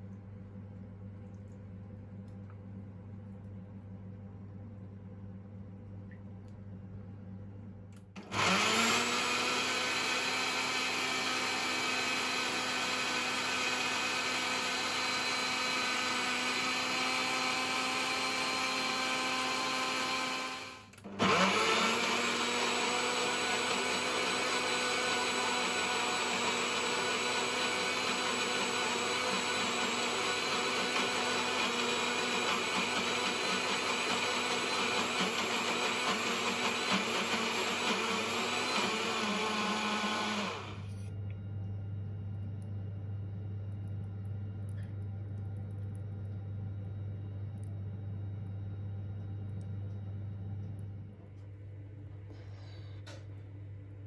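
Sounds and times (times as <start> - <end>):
blender running: 8.2 - 41.1.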